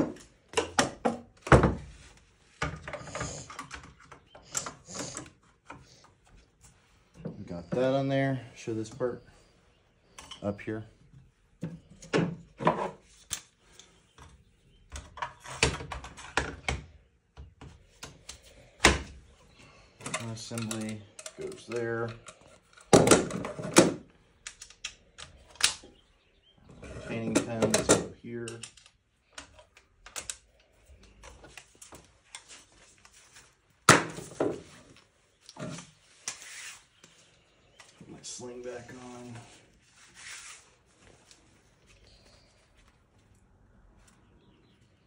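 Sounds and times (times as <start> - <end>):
rifle parts clicking and rattling: 19.9 - 26.0, 27.1 - 33.2.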